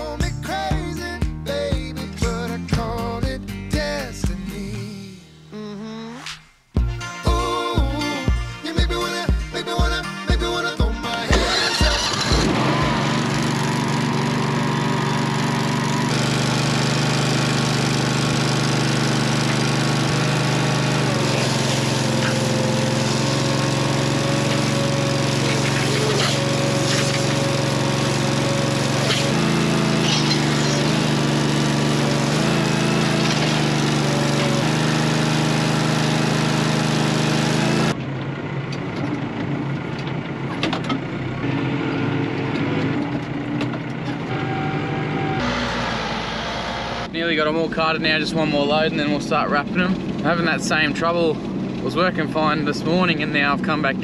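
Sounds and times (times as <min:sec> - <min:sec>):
tractor engine running: 0:10.8 - 0:54.0
petrol engine running: 0:11.0 - 0:54.0.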